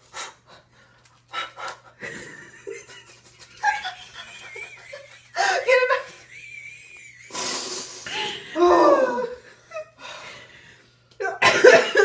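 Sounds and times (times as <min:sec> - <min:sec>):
women laughing: 0:02.0 - 0:10.2, 0:11.2 - 0:12.0
gasps and hissing breath: 0:07.3 - 0:08.3.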